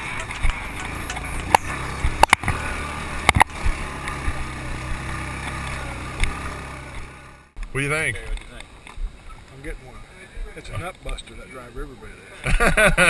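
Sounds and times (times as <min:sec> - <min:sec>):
knocks and rattles over bumps: 0:00.0 - 0:07.4
atv engine running: 0:00.0 - 0:12.6.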